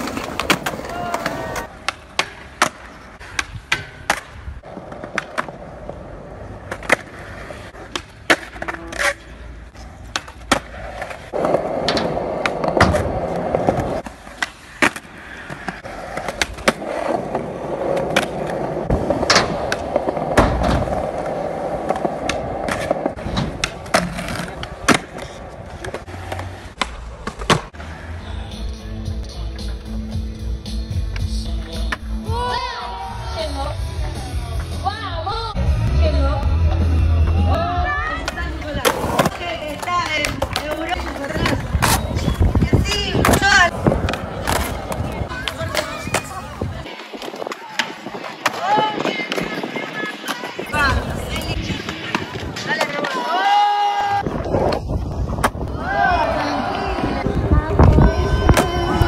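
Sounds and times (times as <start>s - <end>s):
skateboard pops and clacks: 0.0s - 5.6s, 21.8s - 27.8s
skateboard wheels rolling on concrete: 0.0s - 59.0s.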